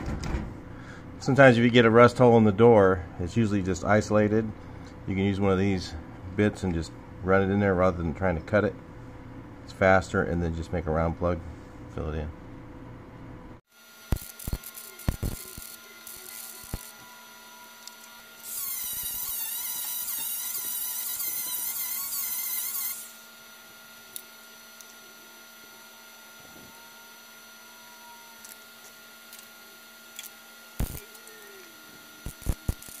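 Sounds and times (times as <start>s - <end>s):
power tool drilling into steel: 13.8s - 23.4s.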